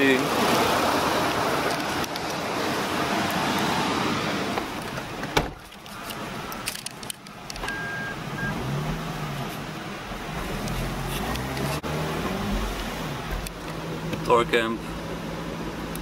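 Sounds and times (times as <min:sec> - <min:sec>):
car door shutting: 0:04.6 - 0:05.7
short electronic beep: 0:07.7 - 0:08.6.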